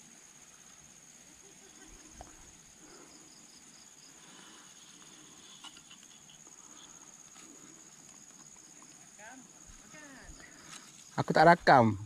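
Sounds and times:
crickets trilling: 0.0 - 12.0
quick insect chirps: 0.0 - 12.0.

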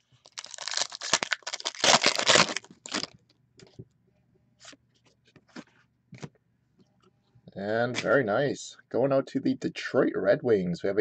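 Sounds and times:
wrapper crinkling and tearing: 0.2 - 3.1.

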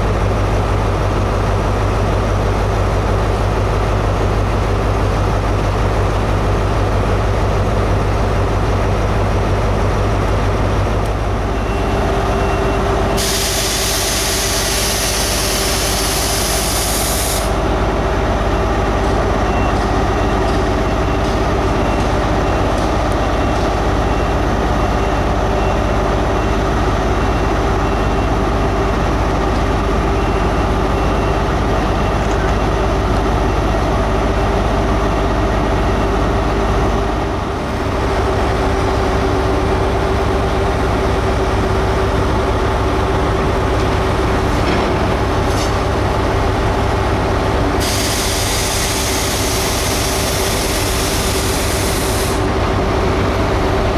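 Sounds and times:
diesel train engines rumbling: 0.0 - 53.9
air release hiss: 13.2 - 17.6, 47.8 - 52.4.

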